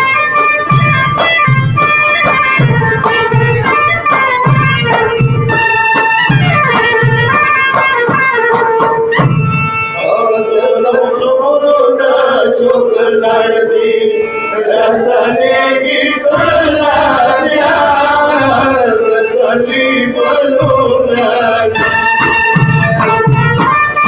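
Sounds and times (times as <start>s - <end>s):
low drum beats: 0.0s - 9.8s, 14.8s - 24.0s
organ-like keyboard drone: 9.2s - 24.0s
man chanting a lament: 10.0s - 21.7s.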